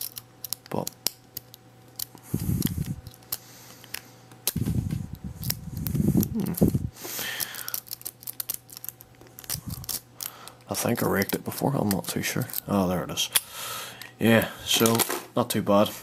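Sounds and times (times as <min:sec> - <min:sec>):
hands rubbing lock body: 0:01.4 - 0:06.9, 0:07.6 - 0:10.1.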